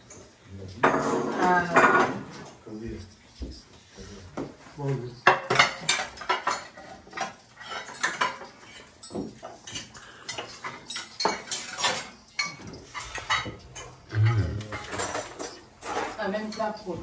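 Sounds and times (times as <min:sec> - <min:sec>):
cutlery clinking on plates: 0:00.0 - 0:02.6, 0:05.2 - 0:16.9
utensils scraping dishes: 0:05.3 - 0:16.9.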